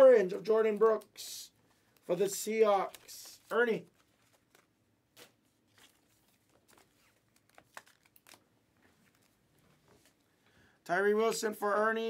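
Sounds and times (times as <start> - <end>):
trading cards clicking and rustling: 1.9 - 8.4.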